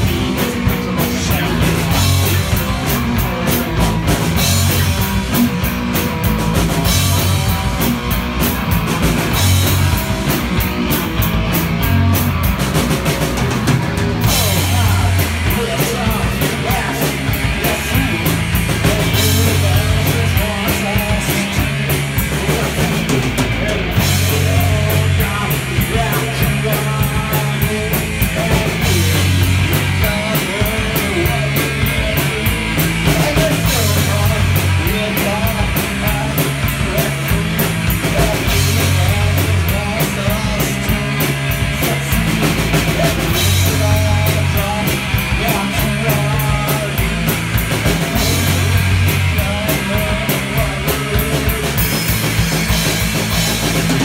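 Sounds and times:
drum kit with cymbal beat: 0.0s - 54.0s
electric bass: 0.0s - 54.0s
electric guitar: 0.0s - 54.0s.

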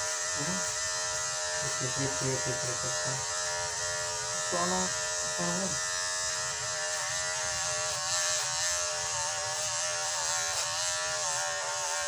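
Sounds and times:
electric hair clipper buzzing: 0.0s - 12.0s.

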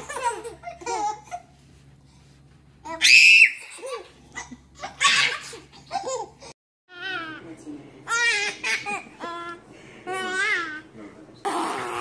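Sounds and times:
babies laughing and squealing: 2.9s - 6.6s
baby high-pitched shriek: 3.0s - 3.7s.

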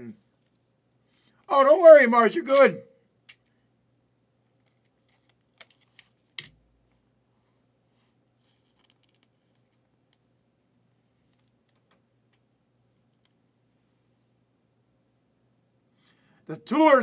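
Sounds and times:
soft plastic rustle: 4.5s - 10.2s.

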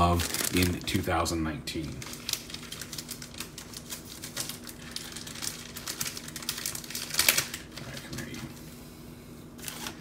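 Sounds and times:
packaging rustle: 0.0s - 1.1s, 1.8s - 8.5s
cards and plastic packaging crinkling: 0.0s - 8.6s.

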